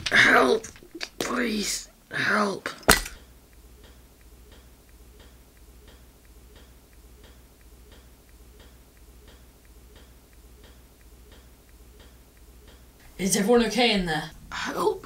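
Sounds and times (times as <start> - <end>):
low steady hum: 0.0 - 15.0
faint clock ticking: 3.2 - 15.0.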